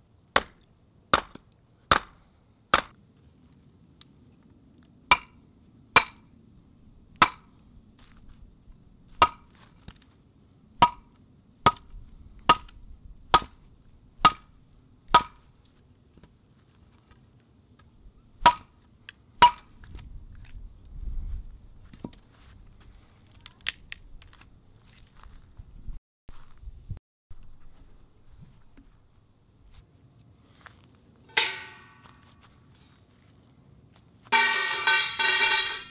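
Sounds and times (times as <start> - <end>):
hatchet chopping wood: 0.4 - 3.0, 5.1 - 5.4, 6.0 - 6.2, 7.2 - 7.5, 9.2 - 9.6, 10.8 - 11.9, 12.5 - 12.7, 13.3 - 13.6, 14.2 - 14.5, 15.1 - 15.4, 18.4 - 18.7, 19.4 - 19.7.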